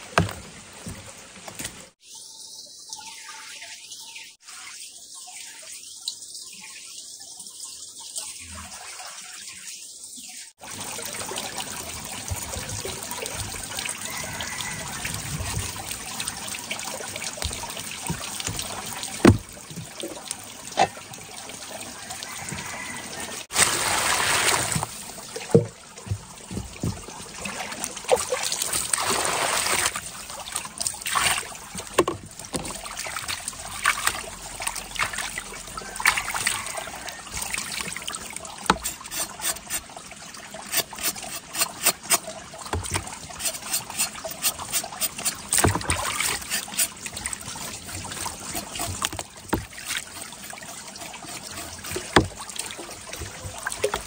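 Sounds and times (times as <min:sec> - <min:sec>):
water splashing and dripping: 0:00.0 - 0:02.0, 0:02.9 - 0:54.0
water pouring into plastic basin: 0:22.3 - 0:54.0.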